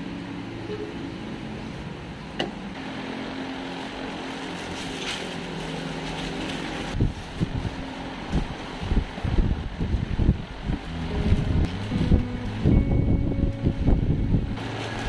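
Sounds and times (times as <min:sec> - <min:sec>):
low mechanical hum: 0:00.0 - 0:15.0
low thumps: 0:10.6 - 0:14.6.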